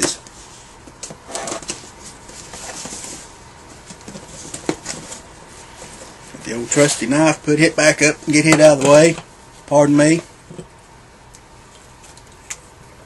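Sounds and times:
cardboard box rustling and scraping: 1.2s - 6.9s.

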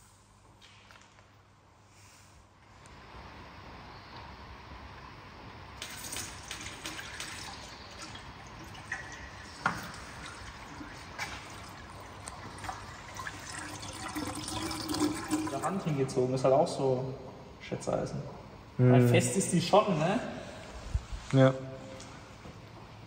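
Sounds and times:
oil stream splashing into basin: 5.8s - 15.9s.

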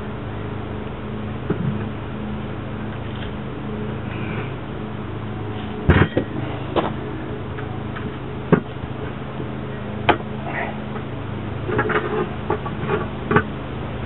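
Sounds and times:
steady low hum: 0.0s - 14.0s
tire irons clanking on rim: 2.8s - 14.0s.

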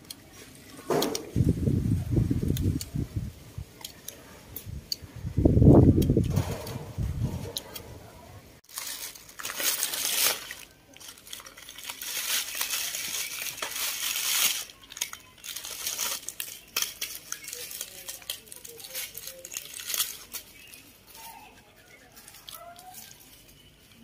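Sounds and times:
plastic wrappers crinkling: 8.6s - 24.0s.

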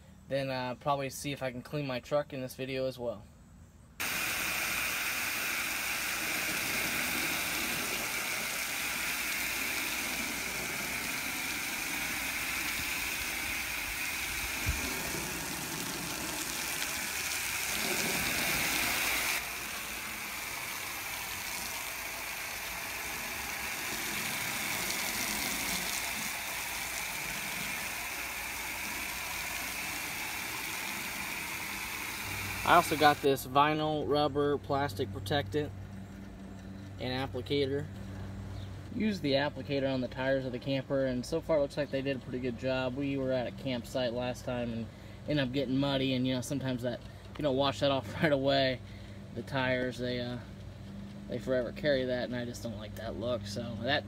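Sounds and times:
foam gun spraying hissing jet: 4.0s - 33.4s.

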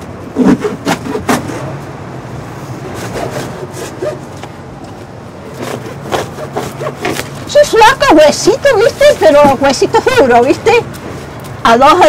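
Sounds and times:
cardboard scraping: 0.4s - 1.8s, 2.8s - 4.4s, 5.5s - 7.4s.

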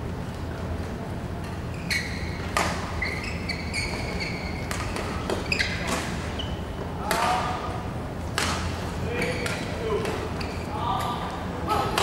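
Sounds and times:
shoes squeaking on court: 1.4s - 7.0s, 8.6s - 11.2s
racket striking shuttlecock: 8.3s - 8.7s.

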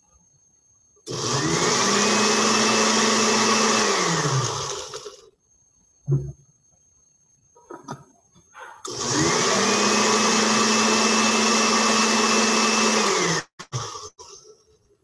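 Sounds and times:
blender motor running: 1.1s - 5.3s, 8.9s - 14.4s.

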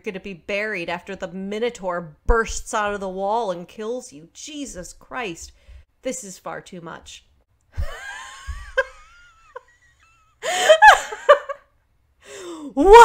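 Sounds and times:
woman gasping and laughing: 7.8s - 11.6s, 12.2s - 13.0s
woman whining: 12.6s - 13.0s.

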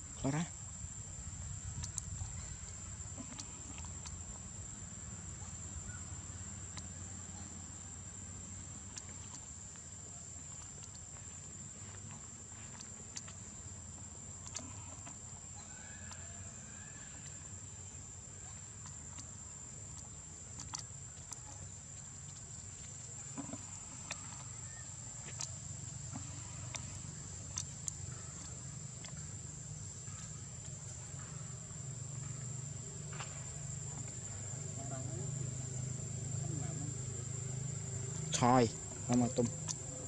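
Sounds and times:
faint clicks: 1.8s - 4.2s, 10.5s - 11.3s
high-pitched insect drone: 28.1s - 40.0s.

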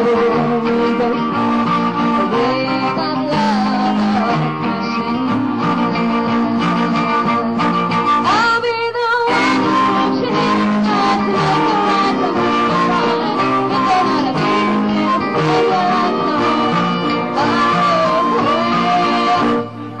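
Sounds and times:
accordion: 0.0s - 8.5s, 9.3s - 20.0s
electric guitar: 0.0s - 20.0s
person singing: 0.0s - 20.0s.

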